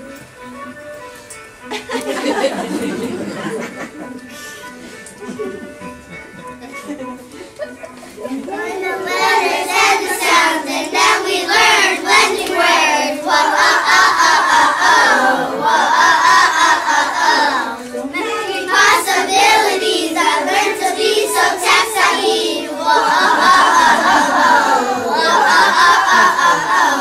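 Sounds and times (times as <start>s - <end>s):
rhythmic hand clapping: 8.4s - 17.9s, 18.5s - 27.0s
children singing in unison: 8.5s - 27.0s.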